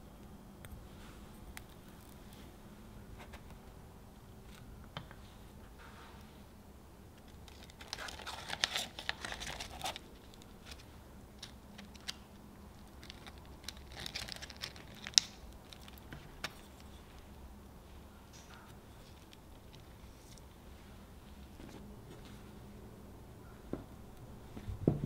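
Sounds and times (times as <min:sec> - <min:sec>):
biscuit crust crinkling and crackling: 0:00.2 - 0:03.8, 0:07.1 - 0:21.6.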